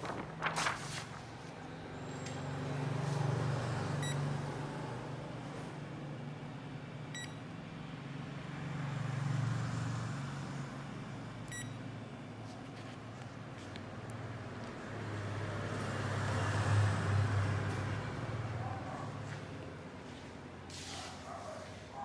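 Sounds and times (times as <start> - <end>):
copier humming: 0.0 - 8.6
key-press beeps: 7.2 - 7.4, 11.5 - 11.8.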